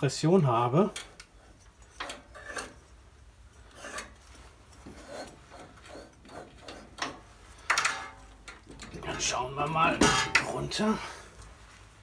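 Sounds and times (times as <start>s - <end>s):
rasping scrapes of engine flywheel: 3.6s - 7.0s.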